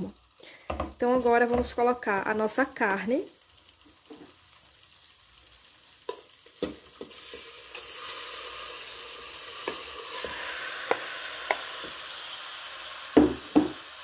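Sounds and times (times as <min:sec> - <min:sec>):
meat sizzling in hot oil: 0:00.0 - 0:14.0
spoon and bowl knocking on pot: 0:13.2 - 0:13.8.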